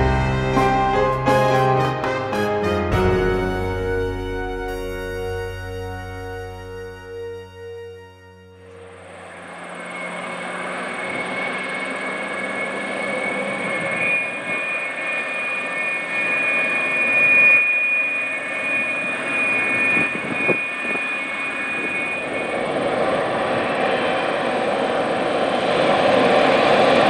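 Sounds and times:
jet engine whine: 0:00.0 - 0:02.2, 0:02.9 - 0:27.0
jet engine roar: 0:08.0 - 0:27.0.

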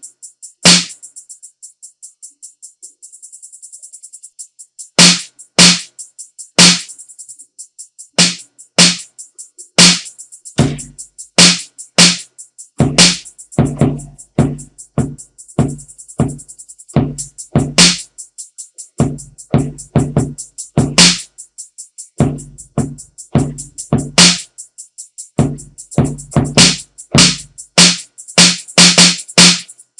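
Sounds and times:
closed hi-hats ticking: 0:00.0 - 0:29.9
hi-hat roll: 0:00.0 - 0:29.9
sharp snare hits: 0:00.6 - 0:01.0, 0:05.0 - 0:05.9, 0:06.6 - 0:06.9, 0:08.2 - 0:09.0, 0:09.8 - 0:12.2, 0:12.8 - 0:14.0, 0:17.8 - 0:18.0, 0:20.8 - 0:21.2, 0:24.2 - 0:24.4, 0:26.6 - 0:29.7
low kick drums: 0:10.6 - 0:12.1, 0:12.8 - 0:16.4, 0:17.0 - 0:18.0, 0:19.0 - 0:21.2, 0:22.2 - 0:24.4, 0:25.4 - 0:27.9.

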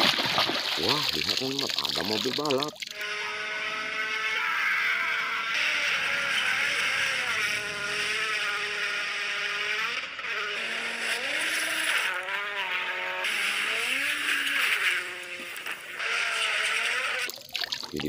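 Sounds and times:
rally car engines at full speed: 0:05.2 - 0:16.8.

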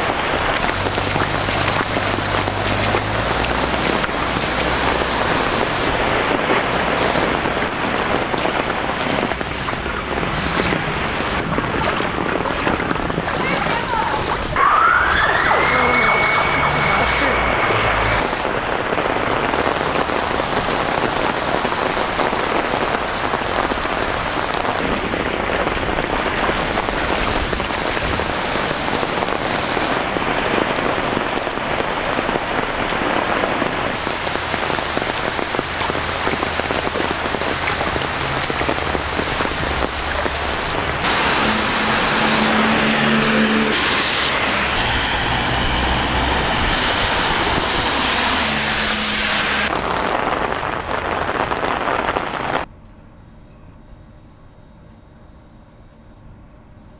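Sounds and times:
vehicle engine humming: 0:00.0 - 0:19.9, 0:33.5 - 0:49.7
heavy rain on pavement: 0:00.0 - 0:52.7
storm water running: 0:00.0 - 0:52.7.

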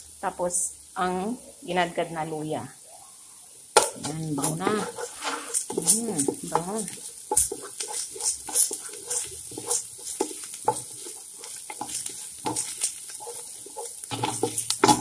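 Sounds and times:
food sizzling in hot oil: 0:00.0 - 0:02.8, 0:03.5 - 0:15.0
wooden spatula scraping a pan: 0:04.0 - 0:15.0.

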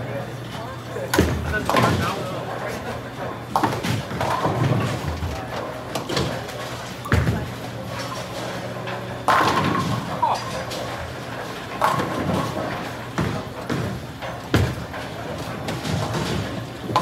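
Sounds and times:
bowling pins crashing: 0:09.2 - 0:17.0.

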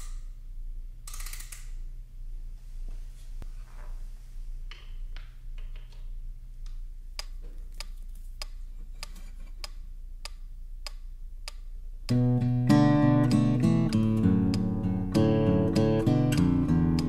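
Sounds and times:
faint low hum: 0:00.0 - 0:17.0
regular ticking: 0:06.6 - 0:17.0
strummed acoustic guitar: 0:12.1 - 0:17.0.

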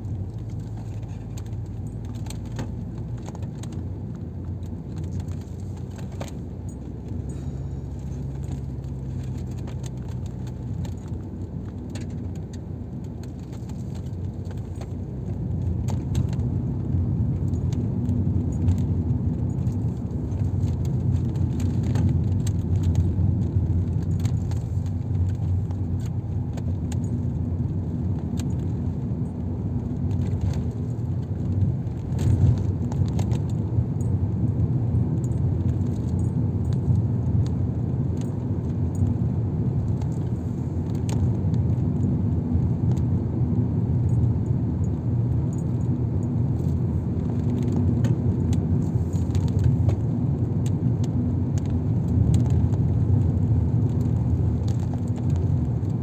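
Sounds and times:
car engine and road noise: 0:00.0 - 0:56.0
small rattles and clicks: 0:00.2 - 0:43.1, 0:44.9 - 0:56.0.

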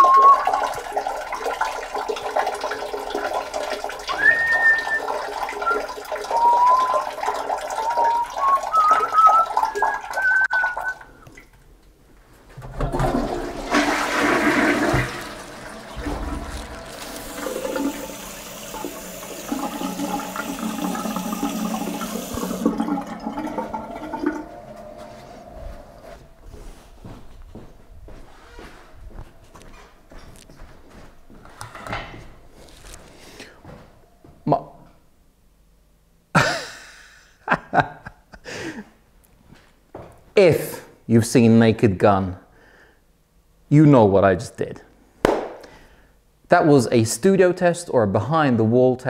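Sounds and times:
man whistling a tune: 0:00.0 - 0:00.7, 0:04.1 - 0:11.2
toilet flushing: 0:00.0 - 0:11.5, 0:12.6 - 0:27.2
liquid splashing into toilet bowl: 0:00.0 - 0:11.6, 0:12.6 - 0:26.0
cistern refilling hiss: 0:13.4 - 0:26.1.

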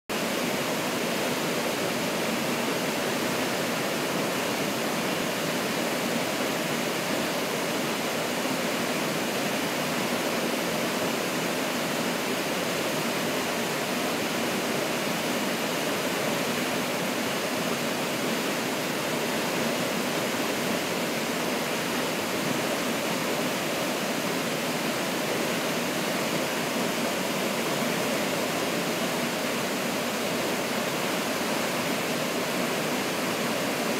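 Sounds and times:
waterfall rushing: 0:00.1 - 0:33.9.

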